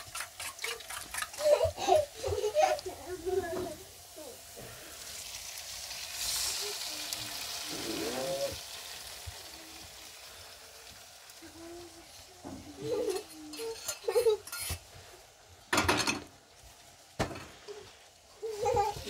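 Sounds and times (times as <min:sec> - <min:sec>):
metal bowl and utensils clattering: 0:00.0 - 0:02.4, 0:12.4 - 0:14.9, 0:15.7 - 0:16.4
egg sizzling in a frying pan: 0:00.0 - 0:19.0.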